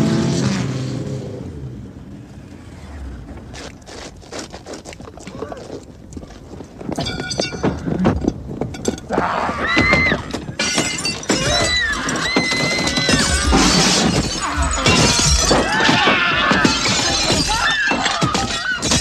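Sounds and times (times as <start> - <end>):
crashing and smashing clatter: 9.8 - 19.0.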